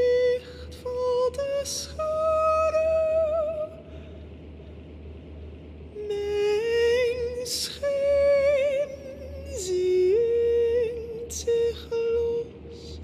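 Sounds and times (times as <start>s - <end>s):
faint low hum: 0.0s - 13.0s
singer breathing: 3.8s - 4.8s.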